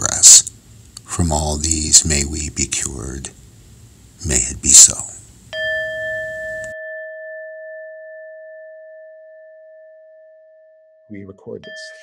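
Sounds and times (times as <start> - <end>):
meditation bell ringing: 5.5 - 12.0.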